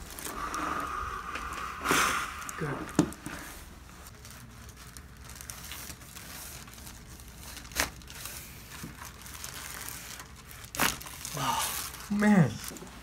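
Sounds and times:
paper and clothing rustling: 0:02.6 - 0:13.0.

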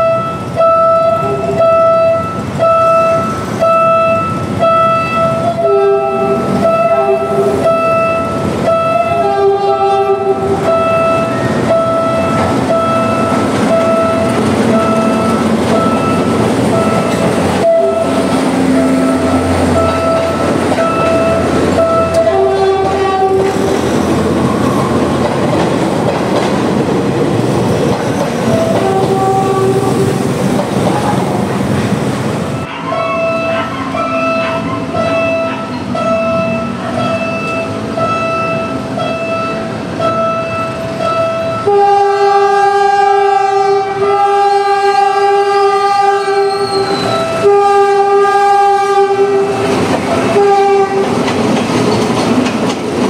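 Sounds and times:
train horn blasts: 0:00.0 - 0:23.7, 0:28.5 - 0:30.2, 0:32.6 - 0:51.2
train rumbling past: 0:00.0 - 0:53.0
wheels clacking over rail joints: 0:04.4 - 0:32.6, 0:49.0 - 0:53.0.

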